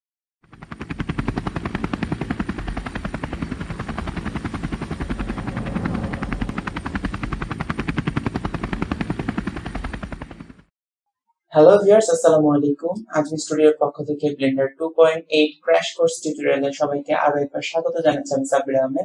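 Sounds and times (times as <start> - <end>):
propeller aircraft engine drone: 0.4 - 10.7.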